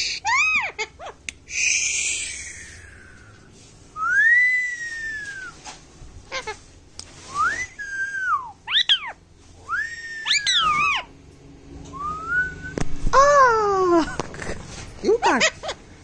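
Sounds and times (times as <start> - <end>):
parrot whistling: 7.4 - 11.1.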